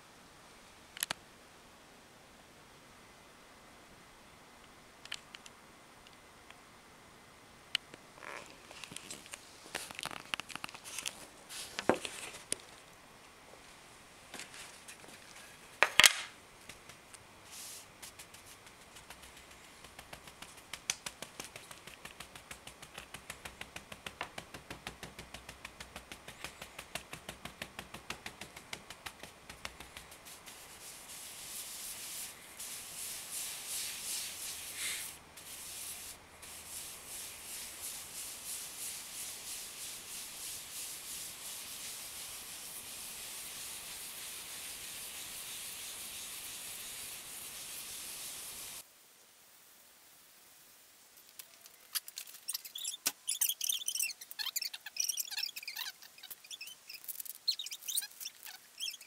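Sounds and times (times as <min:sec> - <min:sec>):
pad scrubbing on paper: 0:17.5 - 0:48.8, 0:52.5 - 0:59.0
pad tapping on paper: 0:19.0 - 0:30.2.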